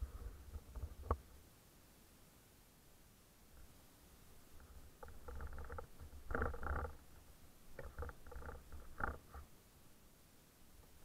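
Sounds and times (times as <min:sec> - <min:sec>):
bike clicking and rattling: 0:05.0 - 0:07.0, 0:07.8 - 0:09.4.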